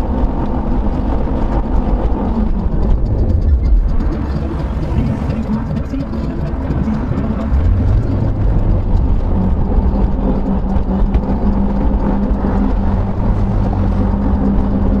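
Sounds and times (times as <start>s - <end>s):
car engine hum: 0.0s - 15.0s.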